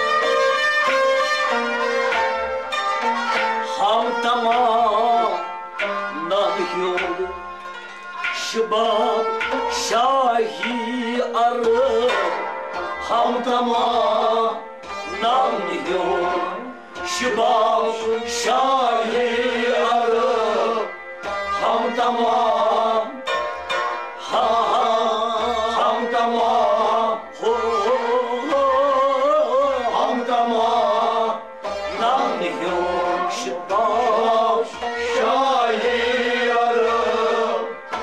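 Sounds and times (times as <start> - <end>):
bowed and plucked strings: 0.0 - 38.0
harmonium: 0.0 - 38.0
man singing: 3.6 - 7.4, 8.2 - 23.3, 24.2 - 38.0.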